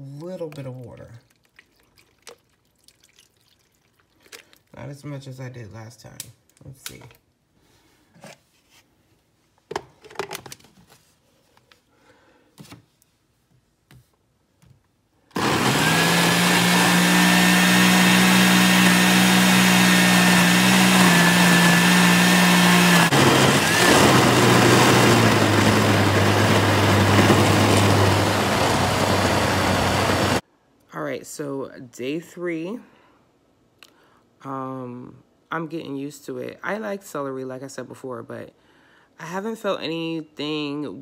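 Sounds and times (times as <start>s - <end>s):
blender running: 15.3s - 30.4s.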